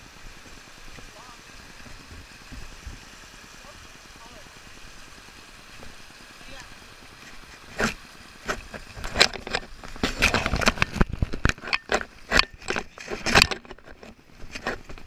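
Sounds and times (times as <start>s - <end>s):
crunches and scrapes: 7.2s - 15.0s.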